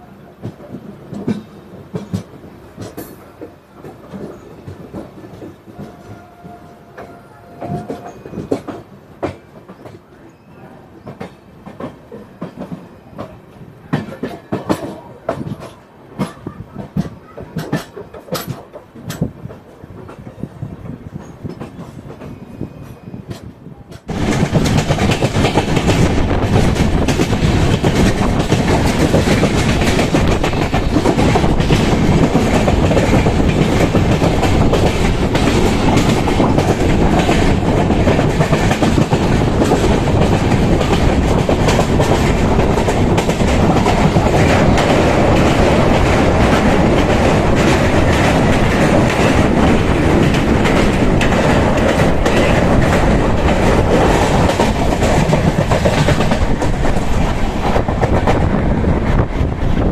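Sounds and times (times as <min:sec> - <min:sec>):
train rumble: 0:00.0 - 0:59.9
wheels clicking over rail joints: 0:11.0 - 0:22.4, 0:23.3 - 0:58.5.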